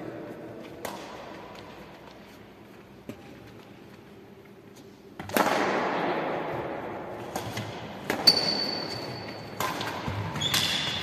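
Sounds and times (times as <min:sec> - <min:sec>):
racket striking shuttlecock: 0:00.8 - 0:01.8, 0:05.2 - 0:06.4, 0:07.1 - 0:11.0.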